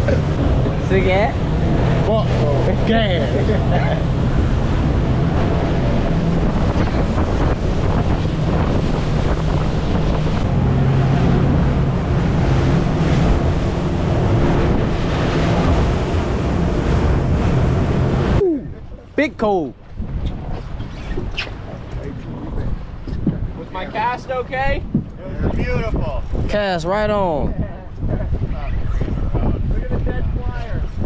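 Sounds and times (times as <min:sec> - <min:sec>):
water rushing: 0:00.0 - 0:22.2
motorboat engine droning: 0:00.0 - 0:24.6
wind buffeting microphone: 0:00.0 - 0:31.0.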